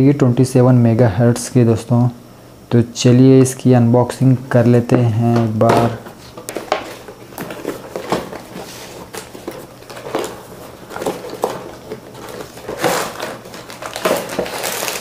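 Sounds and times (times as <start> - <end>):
cardboard box rustling: 5.7 - 15.0.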